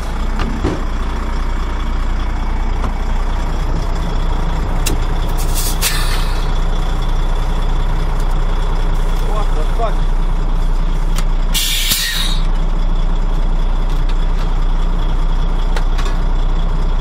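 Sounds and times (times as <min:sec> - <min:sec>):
diesel engine idling: 0:00.0 - 0:17.0
short hiss of compressed air: 0:05.4 - 0:06.4, 0:11.6 - 0:12.5.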